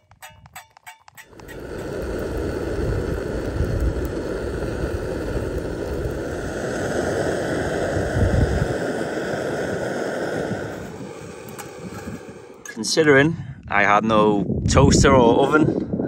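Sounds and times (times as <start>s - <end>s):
bread sizzling in oil: 1.2s - 12.4s
gas burner hiss: 1.2s - 15.8s.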